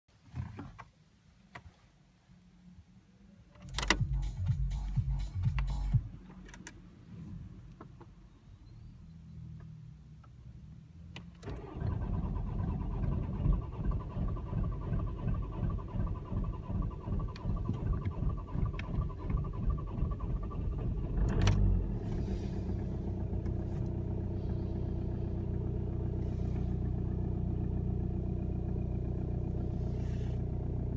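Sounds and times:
diesel engine starting and idling: 0:11.1 - 0:30.9.

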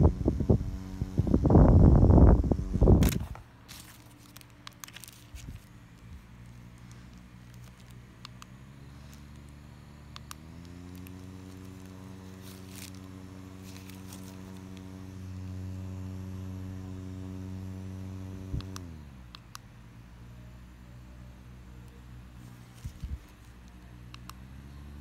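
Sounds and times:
handheld fan humming: 0:00.0 - 0:25.0
plastic crinkling: 0:03.0 - 0:08.0, 0:10.6 - 0:14.9.

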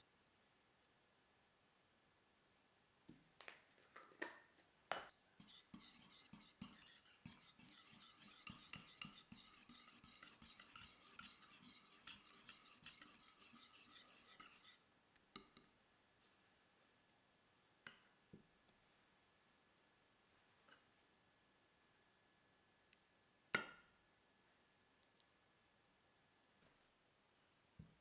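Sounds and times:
whisk scraping bowl: 0:05.4 - 0:14.8.

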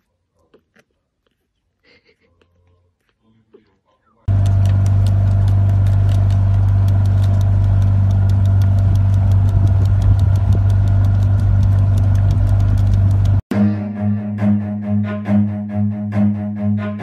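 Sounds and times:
motorboat engine humming: 0:04.3 - 0:13.4
sharp ticks: 0:04.3 - 0:13.4.

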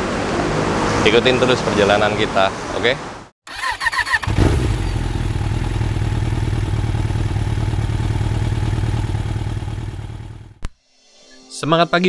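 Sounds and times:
engine idling: 0:04.2 - 0:10.6.

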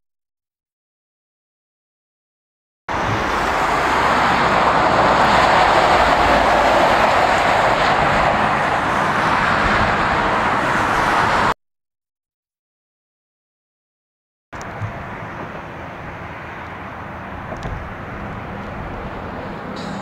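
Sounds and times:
truck tyres hissing: 0:02.9 - 0:11.5, 0:16.8 - 0:20.0
truck engine rumble: 0:02.9 - 0:11.6, 0:14.6 - 0:20.0.

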